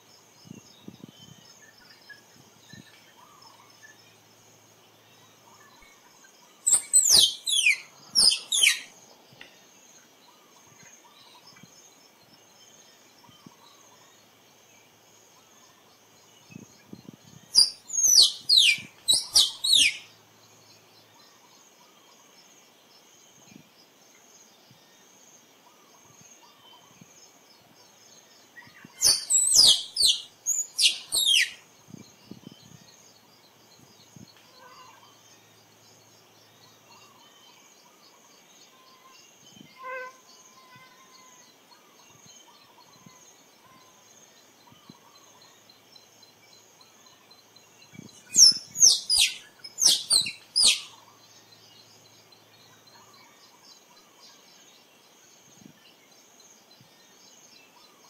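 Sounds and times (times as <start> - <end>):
faint insect drone: 0.0 - 58.0
squirrel chirping: 6.7 - 8.9, 17.6 - 20.0, 29.0 - 31.6, 48.2 - 51.0.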